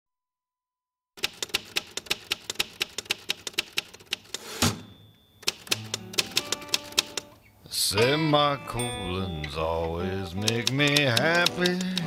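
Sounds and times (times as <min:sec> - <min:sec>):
typewriter keystroke clacks: 0:01.2 - 0:04.4, 0:05.4 - 0:07.3, 0:10.4 - 0:12.0.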